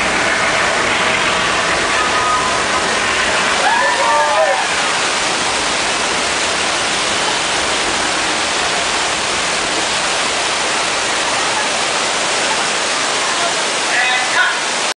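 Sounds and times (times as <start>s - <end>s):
water cascading and splashing: 0.0s - 14.9s.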